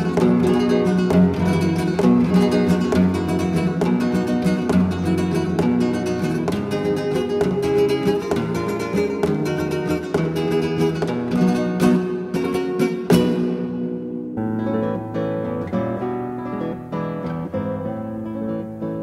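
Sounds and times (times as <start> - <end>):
flamenco acoustic guitar: 0.0 - 19.0.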